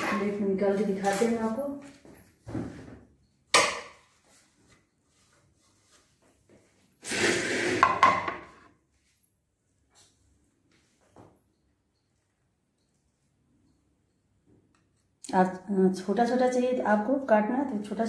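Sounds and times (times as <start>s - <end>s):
plastic plate sliding with clatter: 7.0s - 8.2s
sharp knock on countertop: 7.8s - 8.5s.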